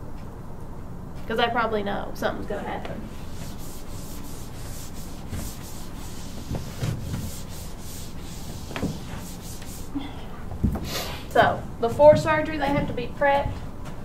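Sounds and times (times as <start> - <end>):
eraser rubbing on whiteboard: 3.1 - 10.0.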